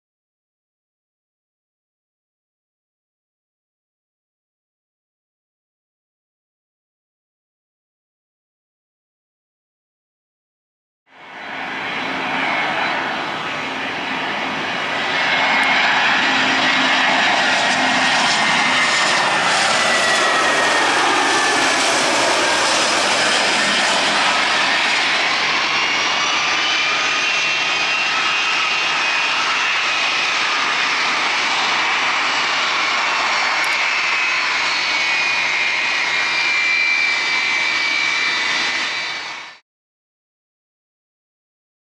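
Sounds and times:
jet engines whining: 11.2 - 39.6.

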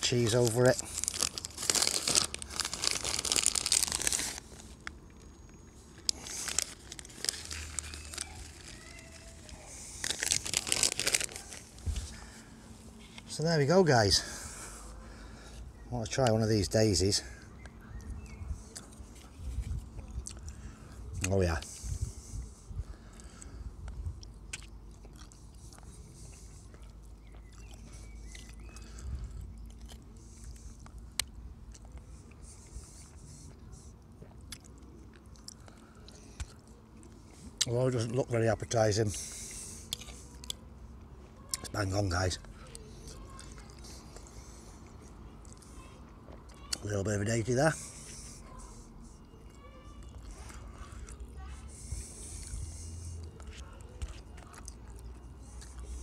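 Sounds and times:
plastic bag crinkling: 0.0 - 12.3
man chewing salad: 0.0 - 13.3, 17.4 - 37.8, 39.0 - 41.7, 42.4 - 46.8, 47.8 - 56.0.

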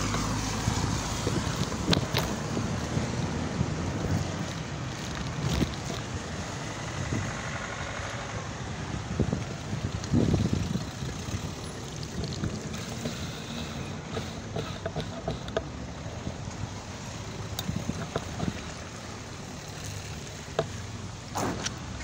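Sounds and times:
bike clicks and rattles: 0.0 - 6.6, 9.2 - 16.7, 17.3 - 20.8
bike tyres hissing on wet tarmac: 0.0 - 14.8.

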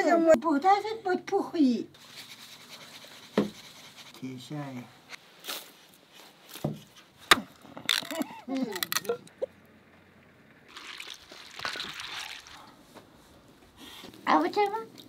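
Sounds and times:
hands sloshing water in bowl: 10.7 - 12.8.

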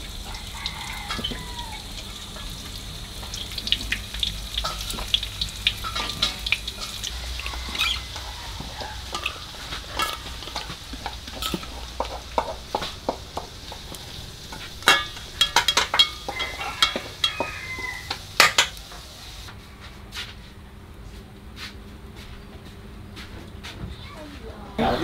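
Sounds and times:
utensils clinking against steel basin: 0.6 - 1.6, 4.6 - 19.0.

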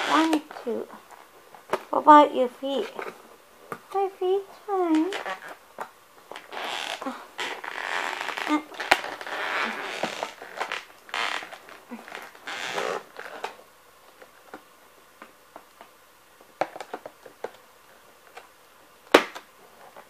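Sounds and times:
packaging rustling and crinkling: 0.0 - 2.0, 4.8 - 14.7.

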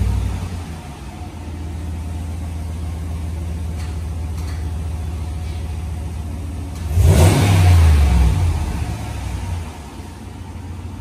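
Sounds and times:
pickup truck engine idling: 0.0 - 7.2, 8.5 - 11.0
engine revving sharply: 6.8 - 9.9.

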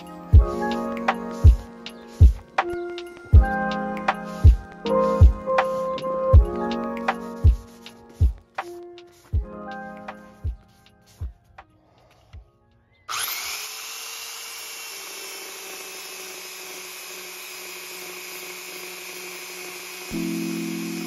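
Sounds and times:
electric belt sander sanding: 13.1 - 21.0.

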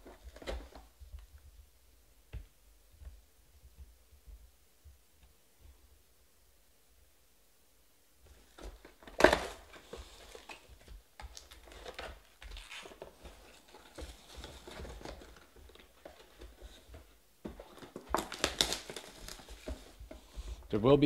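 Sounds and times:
plastic wrappers crinkling and tearing: 8.4 - 20.0.

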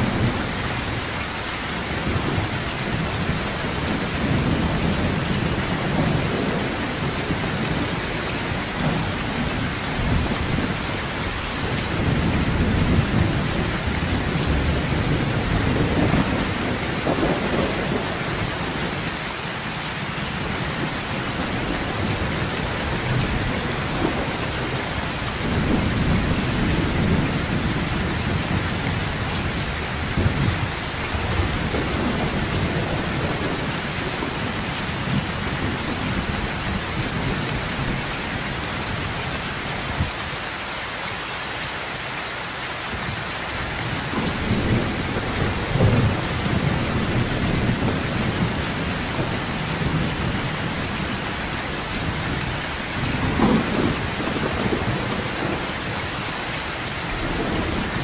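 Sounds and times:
heavy rain on metal roof: 0.0 - 58.0
thunder rolling: 11.5 - 18.2, 53.0 - 56.0.

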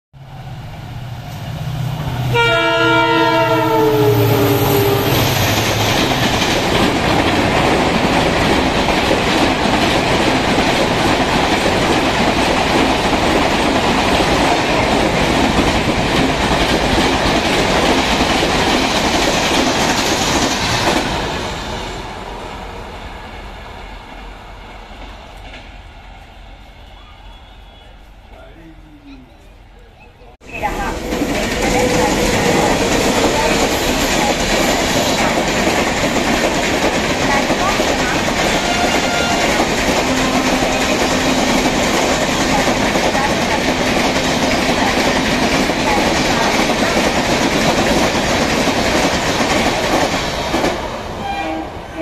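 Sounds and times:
train coaches rushing past: 0.2 - 52.0
train horn: 2.2 - 5.6, 38.4 - 43.4, 51.2 - 52.0.

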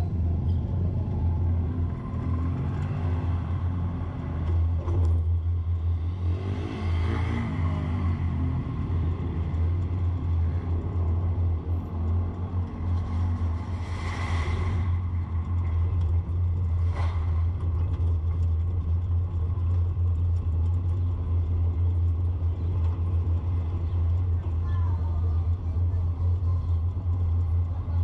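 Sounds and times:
car engine and road rumble: 0.0 - 28.0.

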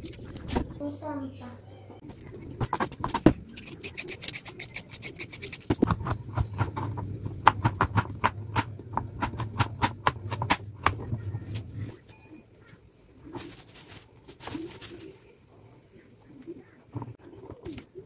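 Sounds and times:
low steady hum: 0.0 - 18.0
knife chopping on plastic board: 5.7 - 11.1.

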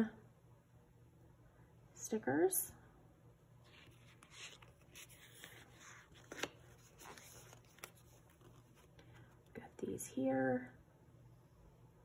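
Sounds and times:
pages rustling: 3.6 - 9.5.

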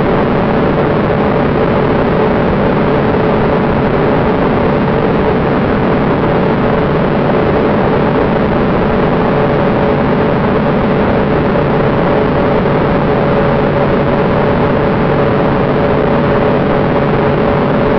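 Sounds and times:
jet engine drone: 0.0 - 17.9.

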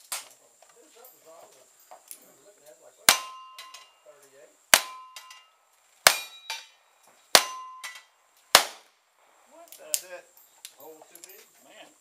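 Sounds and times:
steel plates ringing: 3.1 - 4.1, 4.8 - 8.1
revolver gunshots: 6.0 - 6.7, 7.3 - 8.9.

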